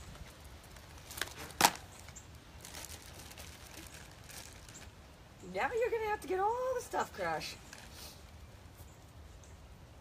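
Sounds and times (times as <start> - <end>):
faint rustling: 0.0 - 5.0.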